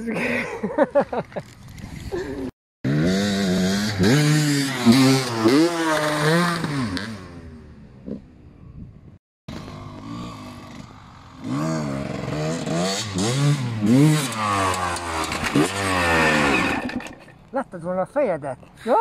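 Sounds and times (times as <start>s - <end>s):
dirt bike revving: 2.8s - 8.2s, 9.5s - 17.3s.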